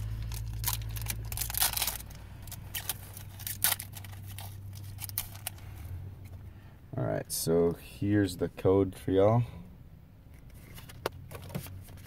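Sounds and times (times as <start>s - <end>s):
foil wrapper tearing and crinkling: 0.0s - 5.6s
steady low hum: 0.0s - 10.9s.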